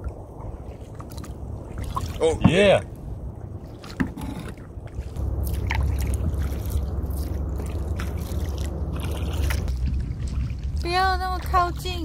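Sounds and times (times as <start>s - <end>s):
paddle splashing in water: 0.0s - 2.6s, 3.6s - 11.8s
low steady rumble: 0.0s - 12.0s
paddle knocks: 2.4s - 2.8s, 3.8s - 4.6s.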